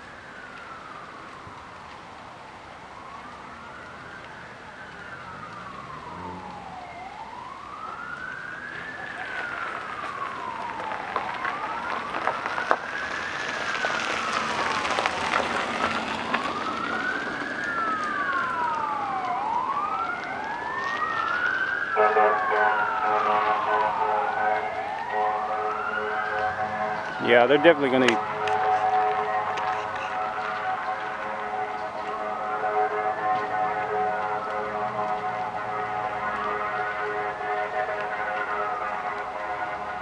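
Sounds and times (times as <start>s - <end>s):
emergency sirens wailing: 0.0s - 40.0s
sharp cracks: 3.3s - 32.4s.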